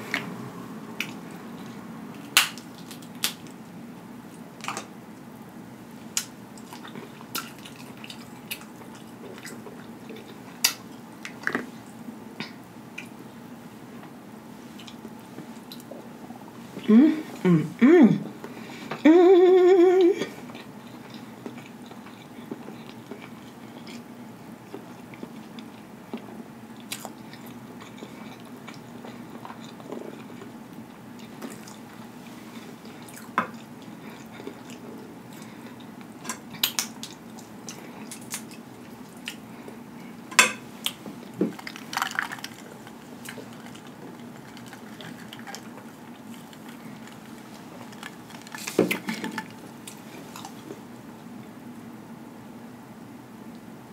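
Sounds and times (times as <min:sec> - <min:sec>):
chewing and wet mouth sounds: 0:01.0 - 0:03.6, 0:06.1 - 0:13.2, 0:14.6 - 0:16.1, 0:20.4 - 0:50.9
crab shells cracking: 0:40.4 - 0:50.5.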